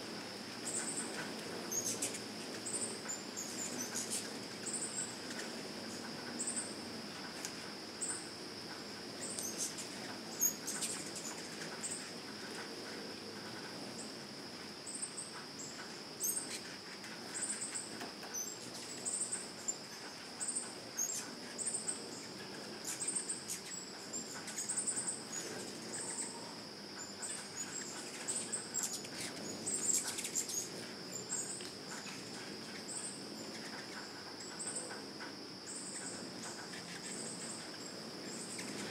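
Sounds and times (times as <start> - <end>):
insects droning: 0.0 - 38.9.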